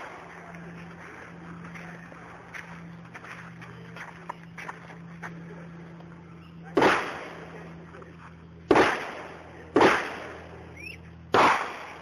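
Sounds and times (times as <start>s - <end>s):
pistol shots: 6.7s - 7.5s, 8.7s - 10.7s, 11.3s - 12.0s.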